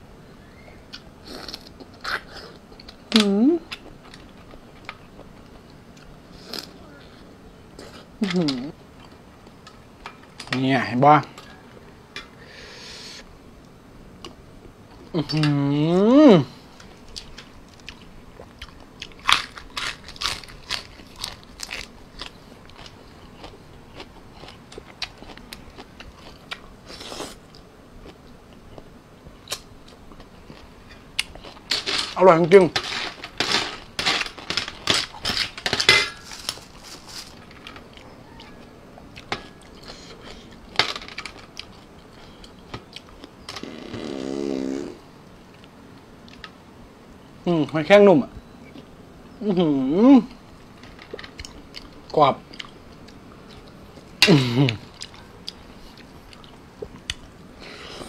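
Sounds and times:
man humming: 15.2 - 16.6
crunchy chewing: 16.7 - 32.1, 33.0 - 46.5, 50.7 - 58.0.

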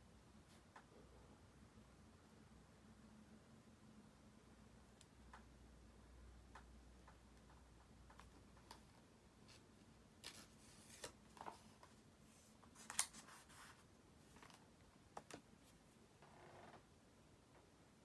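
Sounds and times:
soft clicks and taps: 4.9 - 5.6, 6.4 - 9.0
paper handling: 10.2 - 12.0, 12.6 - 14.6.

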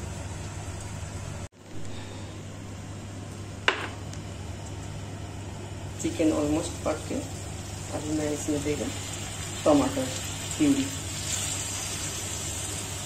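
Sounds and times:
chicken sizzling in a pan: 5.9 - 13.0.

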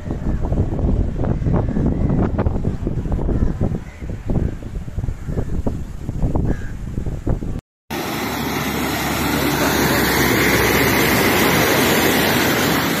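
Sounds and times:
car splashing through floodwater: 7.9 - 13.0.

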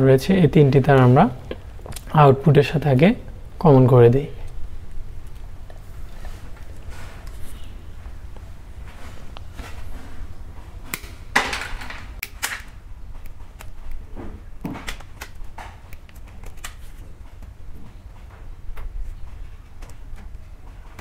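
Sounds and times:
steady low hum: 0.0 - 21.0
wires clicking and scraping: 14.8 - 20.9.

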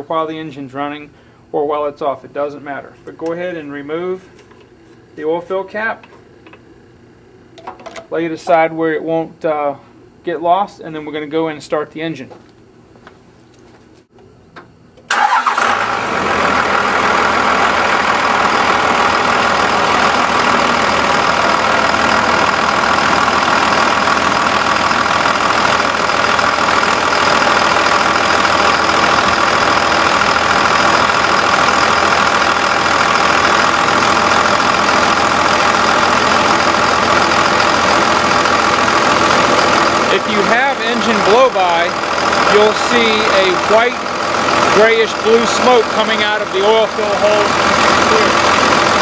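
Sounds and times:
diesel engine starting and idling: 15.0 - 49.0.

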